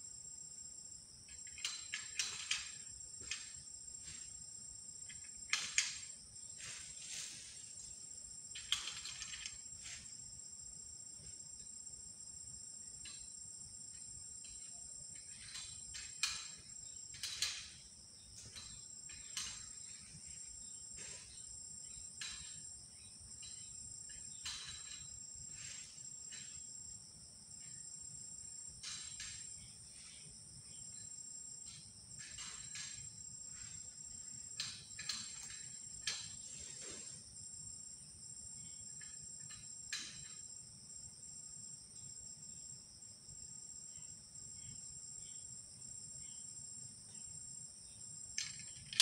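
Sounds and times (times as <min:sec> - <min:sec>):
high-pitched insect chorus: 0:00.0 - 0:49.0
sharp clicks and snaps: 0:48.4 - 0:49.0.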